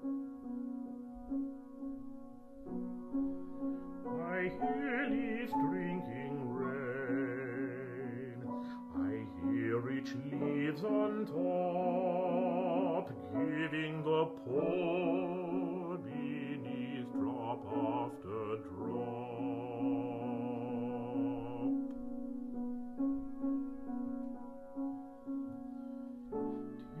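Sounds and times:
piano accompaniment: 0.0 - 27.0
baritone singing: 4.0 - 21.9.

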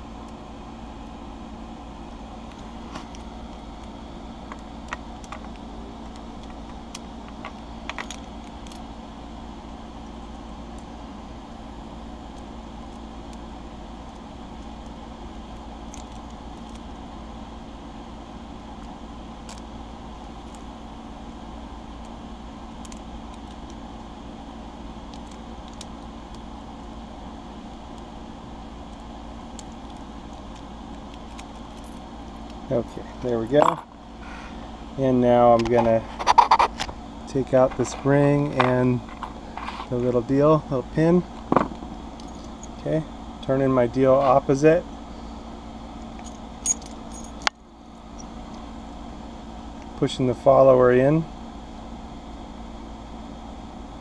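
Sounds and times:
background hum: 0.0 - 54.0
keys jingling on a ring: 46.2 - 47.5.

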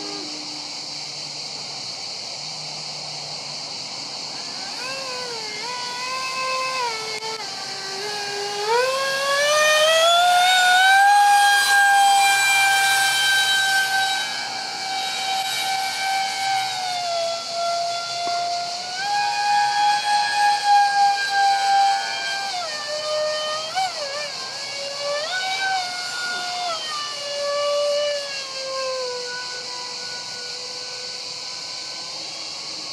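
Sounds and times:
electric ducted fans whining: 0.0 - 32.9.

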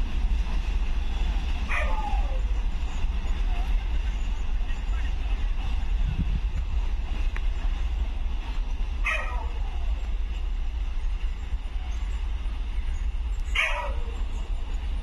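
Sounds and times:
train rumbling: 0.0 - 15.0
dog barking: 1.7 - 2.0, 9.0 - 9.5, 13.6 - 14.1.

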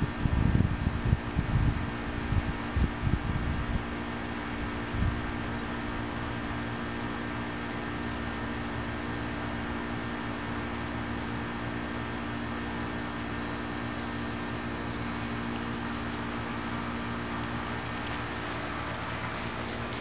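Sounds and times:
steady background hum: 0.0 - 20.0
constant hiss: 13.8 - 20.0.

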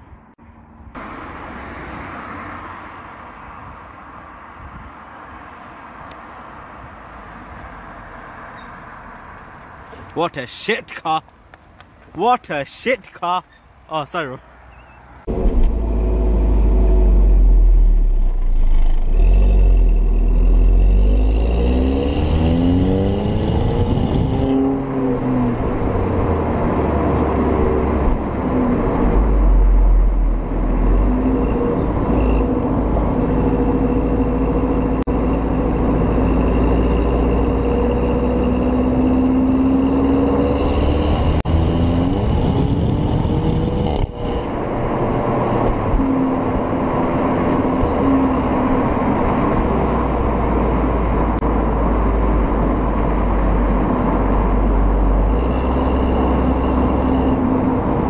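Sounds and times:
car exhaust revving: 15.3 - 46.5.

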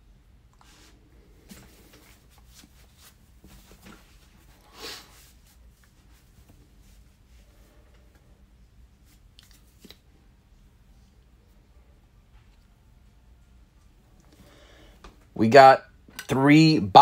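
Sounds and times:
brushing rustle: 0.6 - 8.0.

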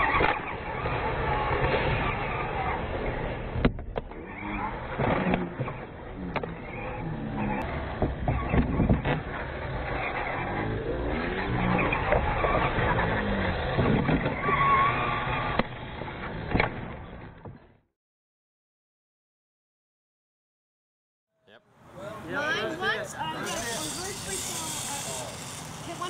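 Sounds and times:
model quad motor running: 4.2 - 16.5, 23.3 - 26.0.

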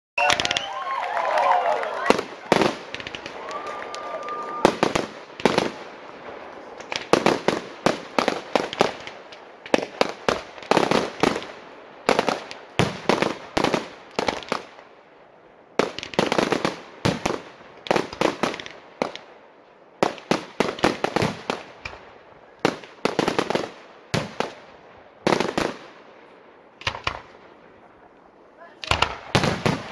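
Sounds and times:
firework cake bangs: 28.8 - 29.9.

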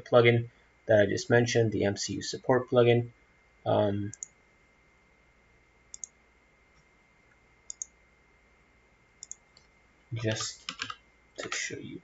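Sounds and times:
thin steady high whine: 0.0 - 12.0
computer mouse clicks: 4.1 - 4.3, 5.9 - 6.2, 7.7 - 7.9, 9.2 - 9.7.

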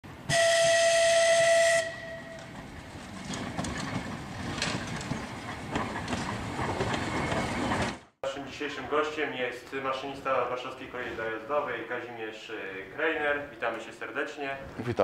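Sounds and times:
train rumbling on rails: 0.1 - 8.2
train horn: 0.2 - 2.5.

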